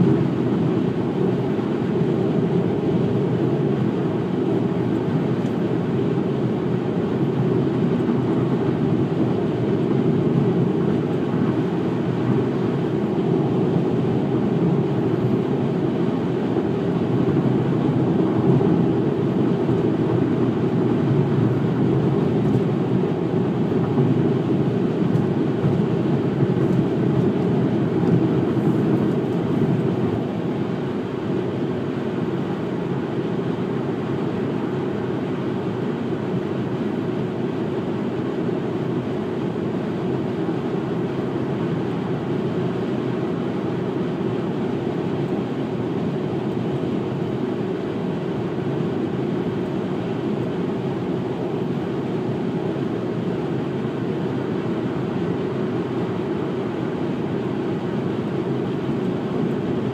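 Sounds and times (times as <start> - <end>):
car road and tyre noise: 0.0 - 59.9.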